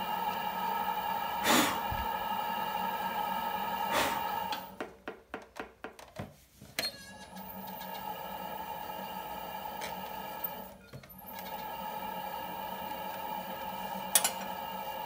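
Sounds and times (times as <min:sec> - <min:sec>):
potter's wheel motor hum: 0:00.0 - 0:04.8, 0:07.2 - 0:15.0.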